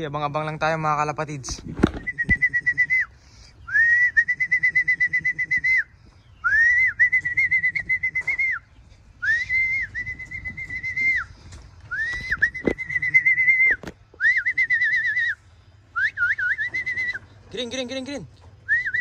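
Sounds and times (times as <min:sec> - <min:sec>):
trilling whistle blasts: 0:09.2 - 0:17.2, 0:18.6 - 0:19.0.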